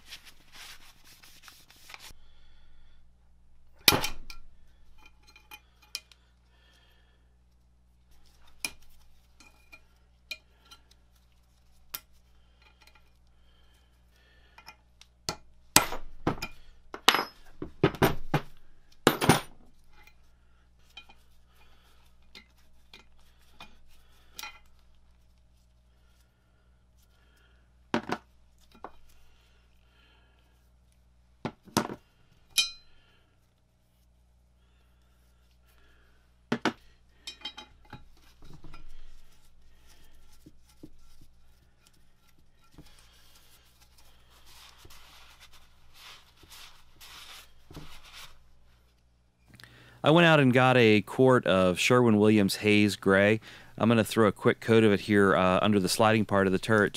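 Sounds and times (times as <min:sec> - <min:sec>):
steel parts clinking on metal: 0:32.5 - 0:32.9.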